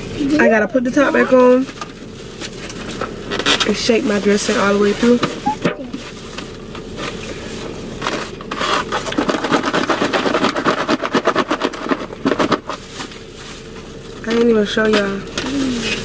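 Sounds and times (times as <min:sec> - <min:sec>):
croutons rattling in plastic container: 0:09.0 - 0:12.9.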